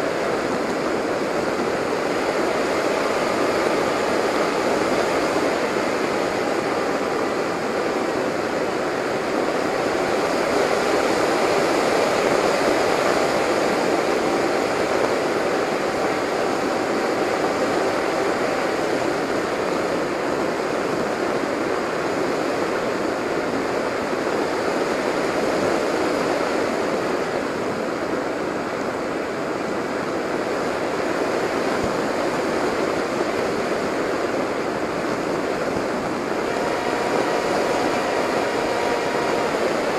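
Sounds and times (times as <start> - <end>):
rushing wind noise: 0.0 - 39.9.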